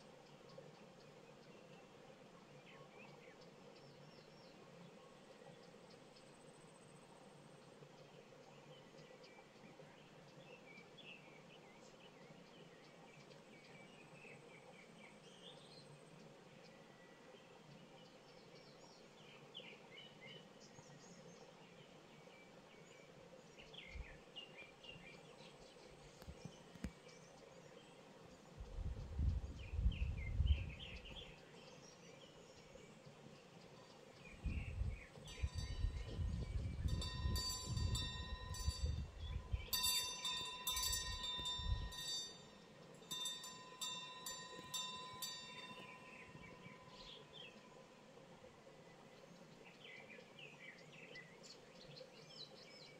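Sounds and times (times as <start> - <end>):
small birds chirping: 7.6 - 52.9
steady ringing tone: 35.3 - 47.9.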